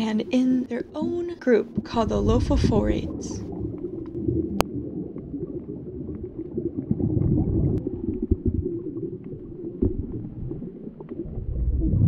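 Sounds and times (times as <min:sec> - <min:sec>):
underwater rumble of water: 0:00.8 - 0:12.0.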